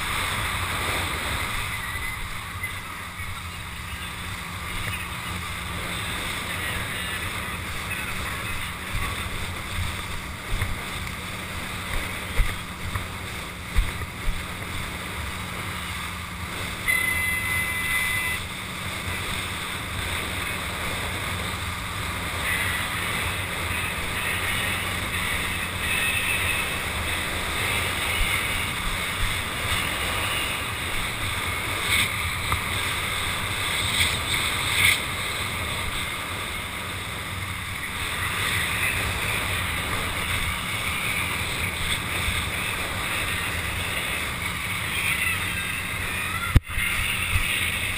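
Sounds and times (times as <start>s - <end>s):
water hissing and slapping: 0.0s - 47.9s
wind rushing over microphone: 0.0s - 47.9s
wind gusts thumping microphone: 7.2s - 16.8s.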